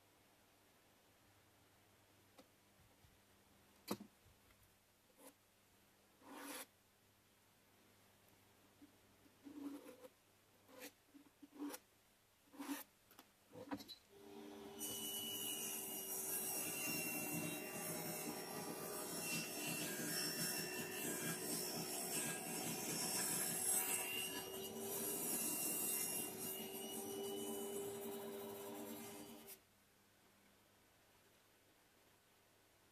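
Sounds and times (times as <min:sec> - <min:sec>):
pencil scratching along metal rail: 0:06.2 - 0:06.7, 0:09.4 - 0:11.8, 0:12.5 - 0:12.9, 0:15.5 - 0:29.5
jigsaw cutting plywood: 0:14.8 - 0:29.5.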